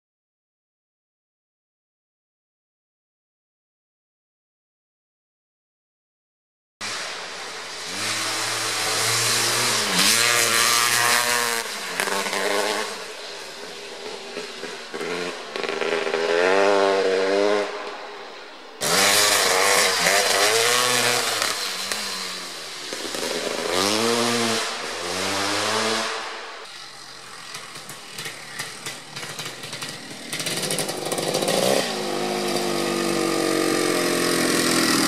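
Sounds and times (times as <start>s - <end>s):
dirt bike engine revving: 6.8s - 35.0s.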